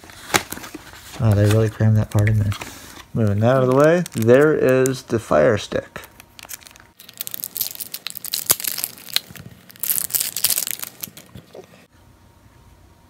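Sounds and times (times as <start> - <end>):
plastic wrapping crinkling and tearing: 3.2 - 5.0, 6.0 - 11.6.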